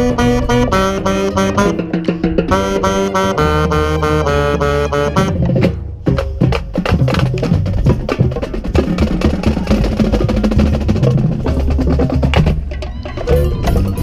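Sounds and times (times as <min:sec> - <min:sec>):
marching drums and percussion: 0:00.0 - 0:03.7, 0:05.1 - 0:14.0
sustained low brass tones: 0:00.0 - 0:05.7.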